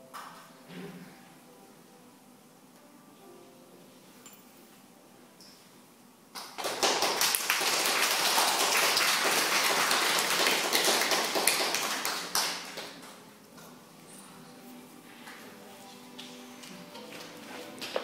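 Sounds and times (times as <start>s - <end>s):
small audience applauding: 6.4s - 13.2s.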